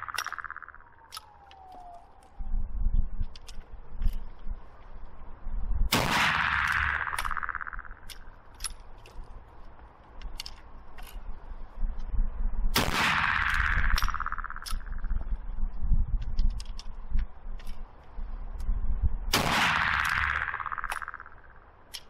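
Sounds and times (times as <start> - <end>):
rifle shots with ringing echo: 5.9 - 8.4, 12.7 - 15.1, 19.3 - 21.6.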